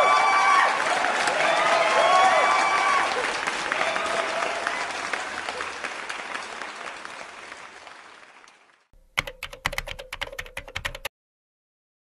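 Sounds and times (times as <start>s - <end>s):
applause: 0.0s - 9.0s
keyboard typing clicks: 9.0s - 11.1s.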